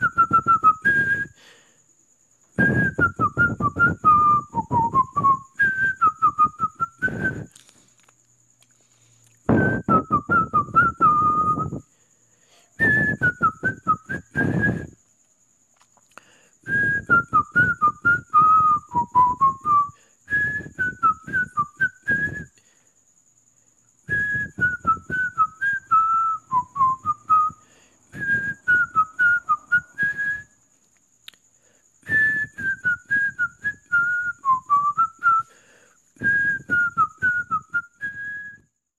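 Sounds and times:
person whistling a cheerful tune: 0.0s - 1.6s, 2.5s - 7.7s, 9.3s - 11.9s, 12.7s - 15.1s, 16.6s - 22.6s, 24.0s - 30.6s, 32.0s - 38.8s.

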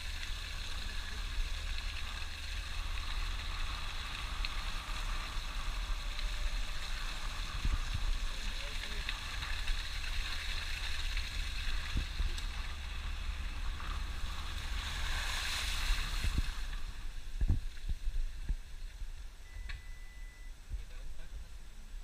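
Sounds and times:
hiss: 0.0s - 17.0s
vehicle rumbling on dirt road: 0.0s - 22.0s
wind on microphone: 11.2s - 19.2s.

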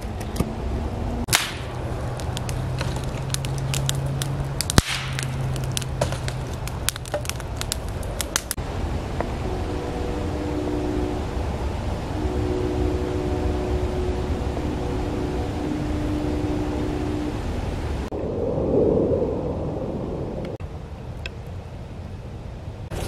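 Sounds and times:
steady low hum: 0.0s - 23.0s
campfire crackling and popping: 1.3s - 8.6s.

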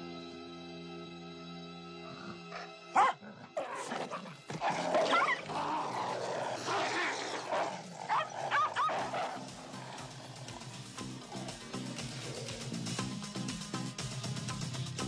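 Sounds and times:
dog barking and yelping: 2.5s - 11.6s.

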